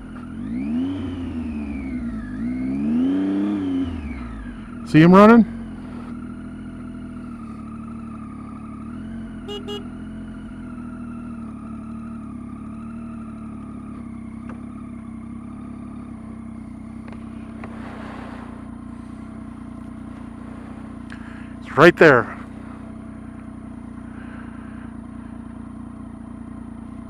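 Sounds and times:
motorcycle engine running: 0:00.0 - 0:27.0
short beeps: 0:09.5 - 0:09.9.

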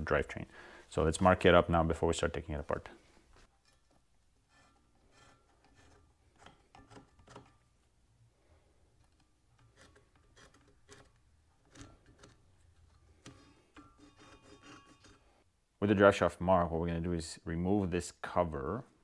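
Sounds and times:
paint marker scratching on metal: 0:03.7 - 0:07.5, 0:09.6 - 0:12.6, 0:13.2 - 0:15.2.

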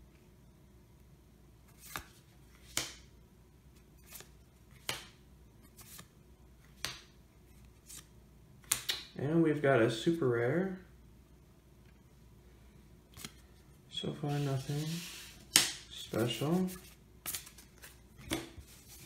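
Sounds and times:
cards flipping swish-snap: 0:01.7 - 0:03.1, 0:04.0 - 0:05.2, 0:05.8 - 0:07.2, 0:07.8 - 0:09.1, 0:13.1 - 0:13.4, 0:14.3 - 0:16.6.

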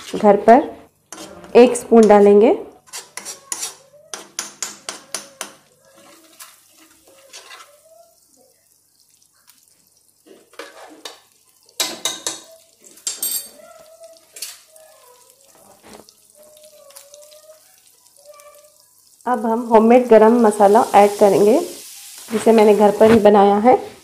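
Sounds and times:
spoon scraping and clinking pot: 0:01.1 - 0:07.8, 0:10.2 - 0:13.6, 0:14.2 - 0:14.8.

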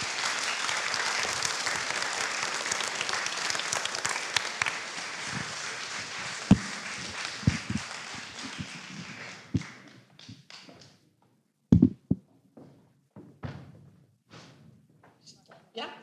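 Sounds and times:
audience applauding: 0:00.0 - 0:11.0
dull thumps: 0:11.7 - 0:12.3.

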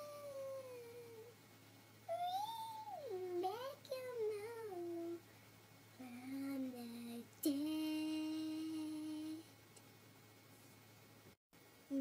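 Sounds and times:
girl singing wordless notes: 0:00.0 - 0:01.4, 0:02.1 - 0:05.4, 0:06.0 - 0:09.6.

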